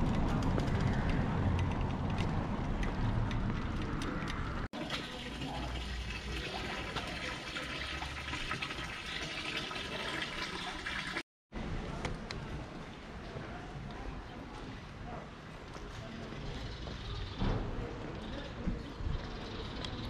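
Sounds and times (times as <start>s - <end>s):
fountain water pouring into basin: 4.8s - 11.2s.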